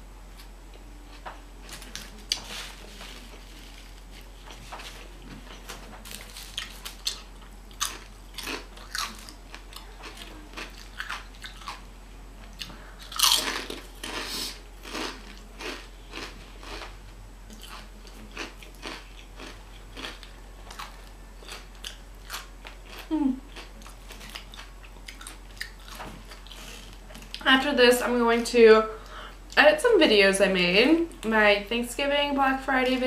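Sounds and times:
chips crunching: 1.6s - 11.8s, 12.5s - 27.4s.

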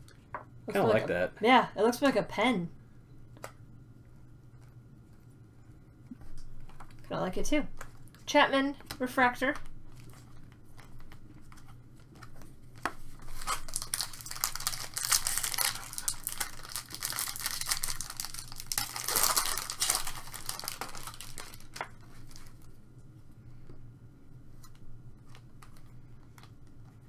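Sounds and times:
foil wrapper tearing and crinkling: 13.2s - 22.7s.

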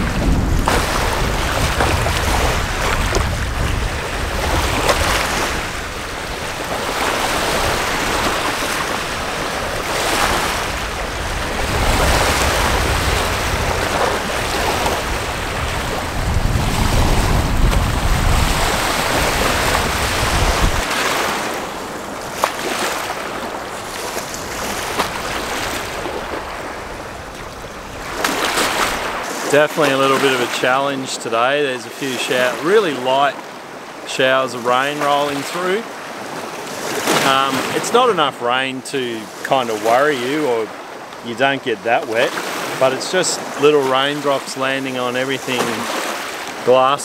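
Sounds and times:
wind buffeting microphone: 0.0s - 29.5s
small waves washing on shore: 0.0s - 47.0s.

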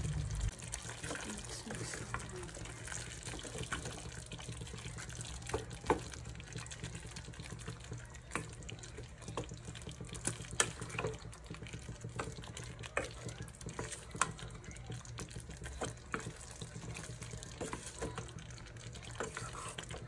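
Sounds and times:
low hum: 0.0s - 0.5s
wet squelching of stirred stew: 0.1s - 20.0s.

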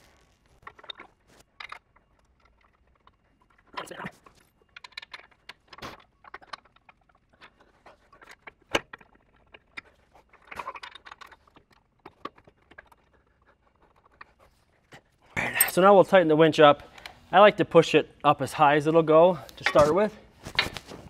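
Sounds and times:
metal parts clinking and knocking: 0.6s - 15.0s, 19.6s - 20.9s.

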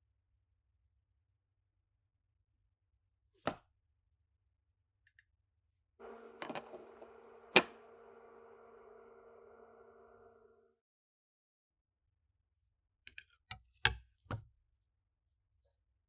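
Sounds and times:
low hum with hiss: 6.0s - 10.7s.

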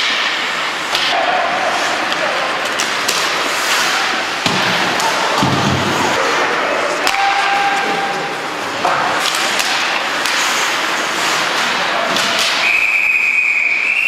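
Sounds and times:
puck and sticks knocking boards: 0.0s - 1.4s, 2.0s - 6.2s, 7.0s - 10.8s, 11.4s - 12.8s.

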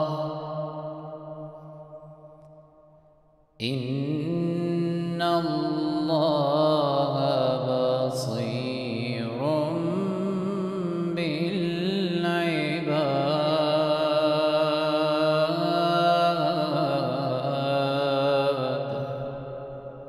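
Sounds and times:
man chanting: 0.0s - 1.3s, 3.6s - 20.0s.

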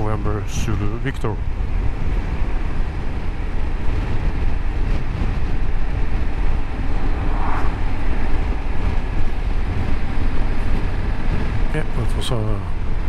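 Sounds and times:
wind rumble: 0.0s - 13.0s
motorcycle riding noise: 1.5s - 11.7s.

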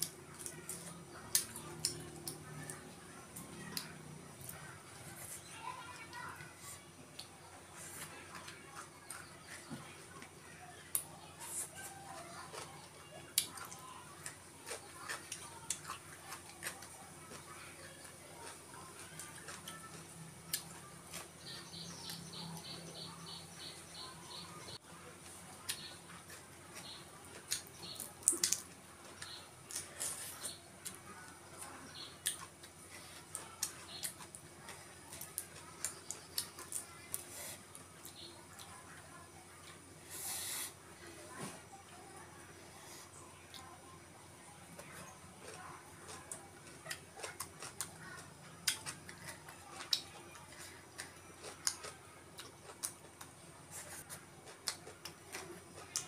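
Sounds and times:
wet chewing clicks and smacks: 0.0s - 4.7s, 8.0s - 21.3s, 25.6s - 31.0s, 31.8s - 38.8s, 44.8s - 56.0s.

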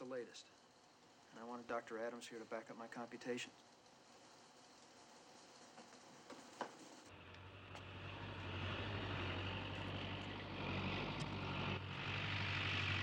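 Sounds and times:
tractor engine running: 7.1s - 13.0s.

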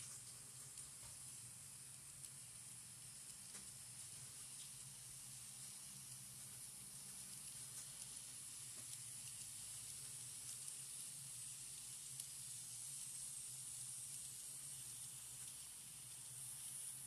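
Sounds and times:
model train hiss and hum: 0.0s - 17.0s
light ticks: 3.3s - 4.9s.

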